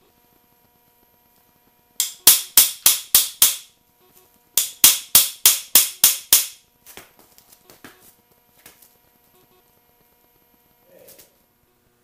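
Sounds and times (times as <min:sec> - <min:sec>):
hammer striking steel bar: 0:02.0 - 0:03.7, 0:04.6 - 0:06.6.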